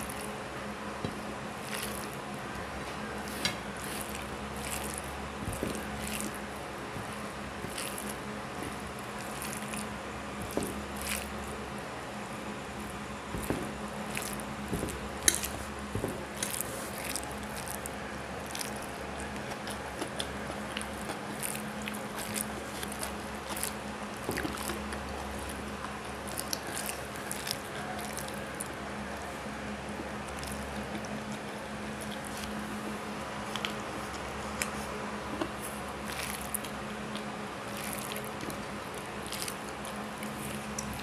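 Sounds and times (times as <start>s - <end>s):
fingers squishing rice: 0.0s - 41.0s
steady low hum: 0.0s - 41.0s
wet chewing clicks: 1.0s - 11.8s, 12.6s - 29.3s, 30.0s - 41.0s.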